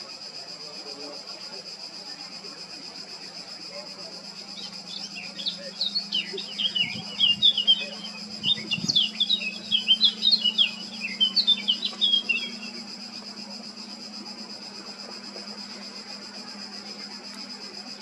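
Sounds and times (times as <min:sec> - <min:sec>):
bird warbling song: 0:04.5 - 0:12.8.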